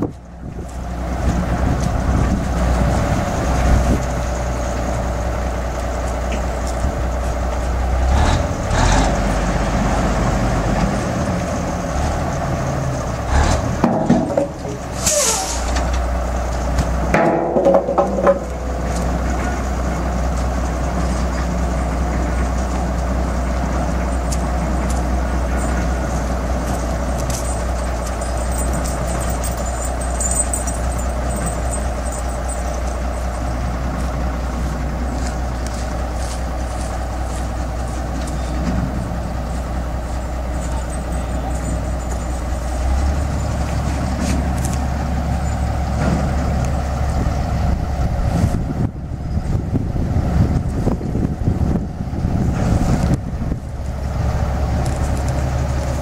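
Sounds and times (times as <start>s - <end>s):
crane engine running: 0.0s - 56.0s
metal clanks: 13.4s - 22.7s.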